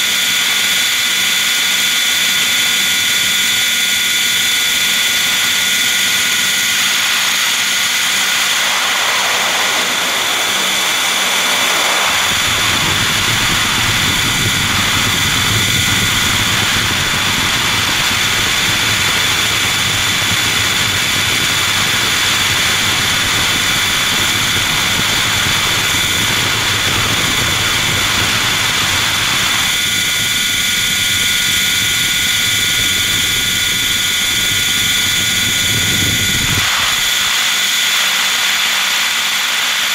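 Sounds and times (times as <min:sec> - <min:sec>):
helicopter motor and rotors whine: 0:00.0 - 0:39.9
rushing noise: 0:04.0 - 0:30.0.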